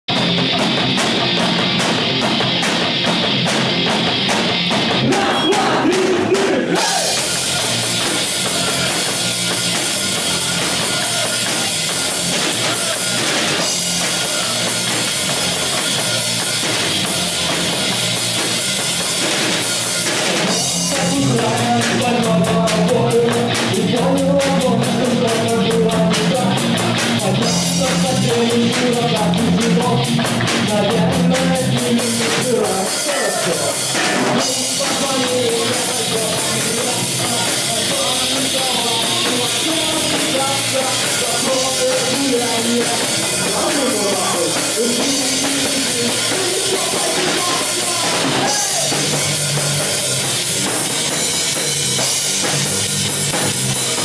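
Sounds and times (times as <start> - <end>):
rock band playing: 0.1 - 54.0
person singing: 5.0 - 9.2, 20.1 - 49.2.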